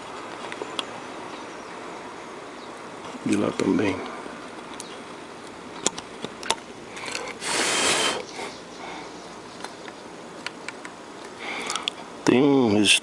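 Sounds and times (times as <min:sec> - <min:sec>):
short rush of breath: 0:07.4 - 0:08.5
faint clicks: 0:09.6 - 0:12.4.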